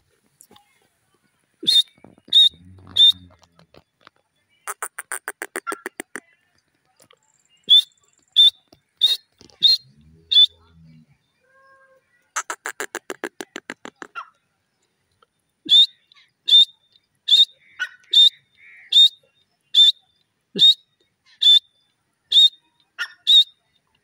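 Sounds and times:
sharp high-pitched bird calls: 1.6s - 3.8s, 4.6s - 6.2s, 7.6s - 10.6s, 11.5s - 14.4s, 15.7s - 23.8s
bird chattering: 1.6s - 3.9s, 4.6s - 6.3s, 7.6s - 10.7s, 12.4s - 14.3s.

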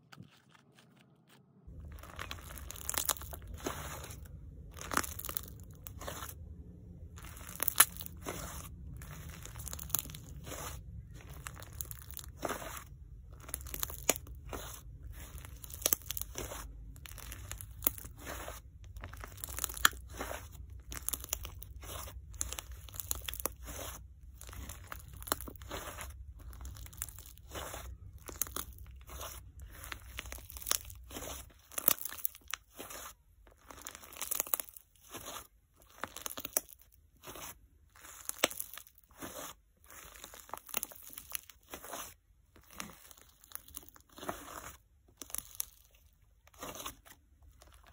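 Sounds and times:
slime being kneaded by hand: 0.0s - 47.9s.

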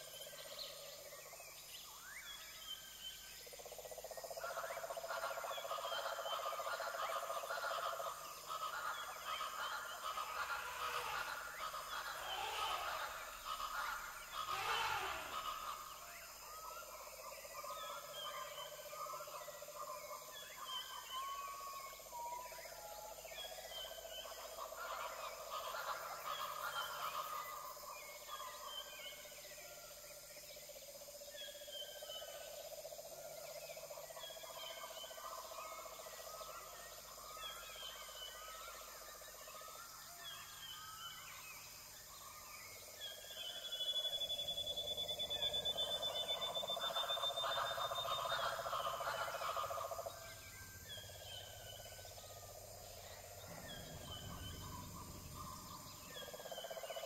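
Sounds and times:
chirping animal calls: 5.0s - 16.4s, 43.4s - 57.0s
rapidly pulsing chorus: 47.2s - 57.0s.

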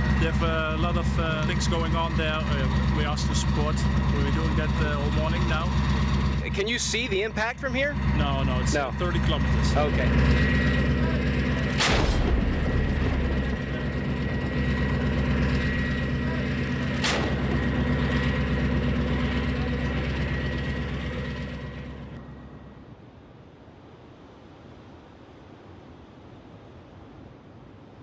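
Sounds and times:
engine running steadily: 0.0s - 25.6s
howitzer firing booms: 11.7s - 15.9s, 16.7s - 19.5s.

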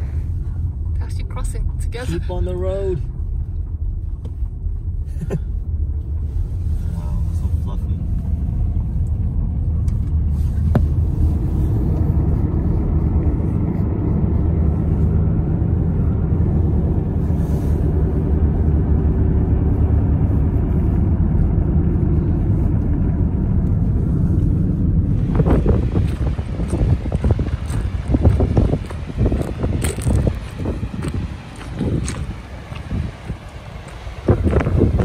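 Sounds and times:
road and engine noise in car: 0.0s - 35.0s
wind buffeting microphone: 23.2s - 35.0s.

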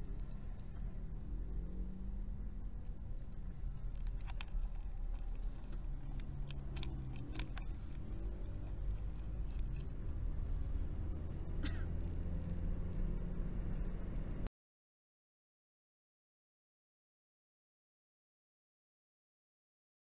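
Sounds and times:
car engine and road rumble: 0.0s - 14.5s
sharp clicks: 3.8s - 10.0s.

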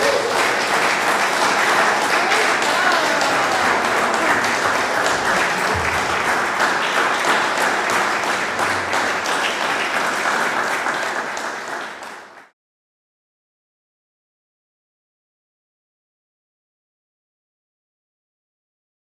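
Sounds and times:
audience applauding: 0.0s - 12.5s.

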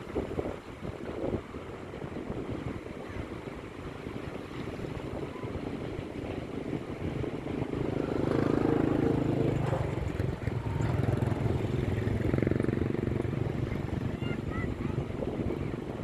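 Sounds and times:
motor engine droning: 7.0s - 15.0s.

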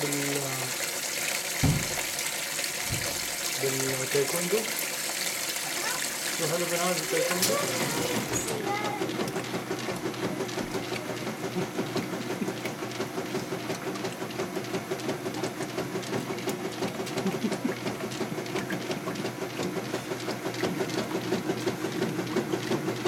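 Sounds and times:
washing machine motor hum: 0.0s - 23.0s
water and clothes churning: 0.0s - 23.0s.

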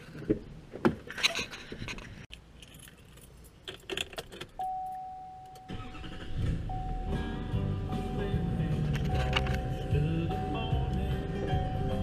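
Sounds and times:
vehicle warning tone: 4.6s - 12.0s
truck engine starting: 5.6s - 12.0s
keys jangling: 8.9s - 9.8s.

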